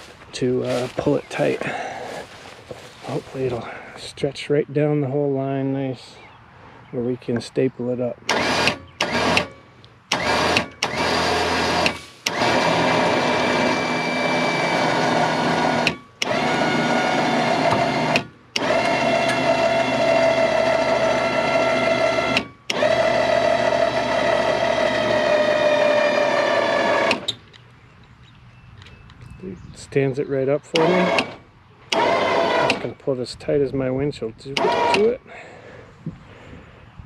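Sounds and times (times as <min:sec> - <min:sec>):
electric winch motor whine: 0:08.3 - 0:27.4, 0:30.7 - 0:33.0, 0:34.6 - 0:35.2.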